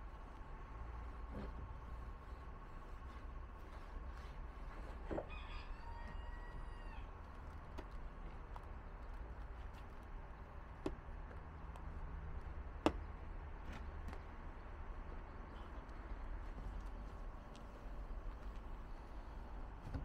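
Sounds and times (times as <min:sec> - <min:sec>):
rooster crowing: 0:05.1 - 0:07.2.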